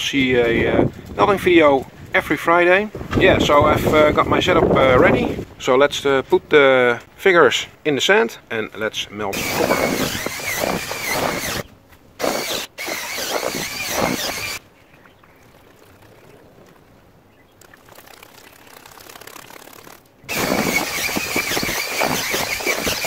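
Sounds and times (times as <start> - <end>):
electric drill mixing sand: 9.3 - 14.6, 18.0 - 23.0.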